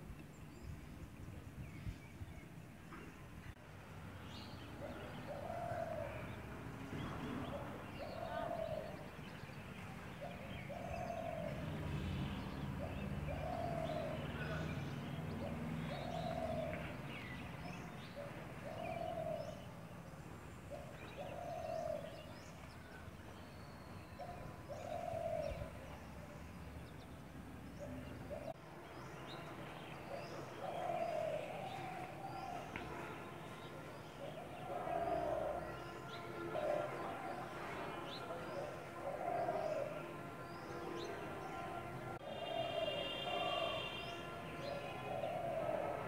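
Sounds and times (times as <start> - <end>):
bird cooing call: 4.8 - 9.2, 10.1 - 11.8, 12.8 - 19.8, 20.7 - 22.6, 23.6 - 26.2, 27.8 - 28.6, 30.1 - 33.6, 34.2 - 40.6, 42.2 - 46.0.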